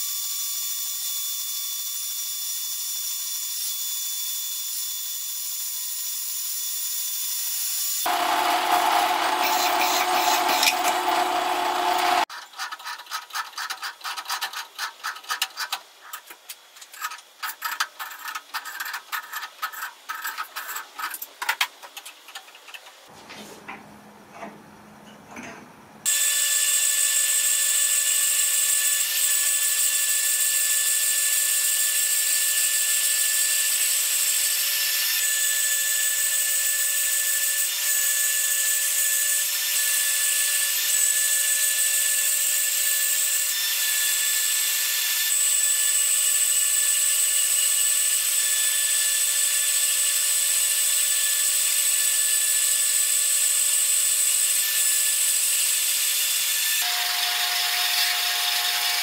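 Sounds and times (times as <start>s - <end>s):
bandsaw cutting metal: 7.5s - 21.2s, 26.0s - 59.0s.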